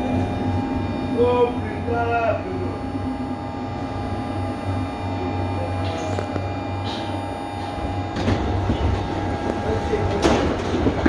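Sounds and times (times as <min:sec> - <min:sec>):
steady higher tone: 0:00.0 - 0:08.2
electrical equipment humming: 0:00.0 - 0:11.0.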